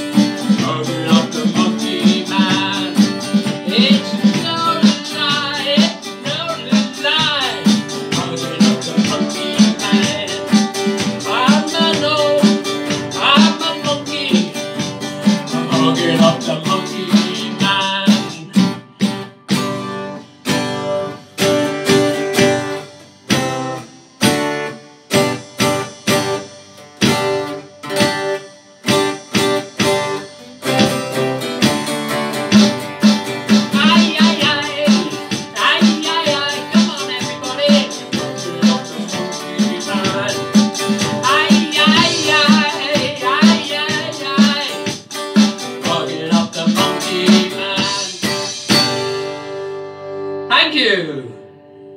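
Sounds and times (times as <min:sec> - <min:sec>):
man singing: 0:00.0 - 0:19.0, 0:33.6 - 0:48.6
electronic drums: 0:00.0 - 0:49.5
acoustic guitar strumming: 0:00.0 - 0:51.9.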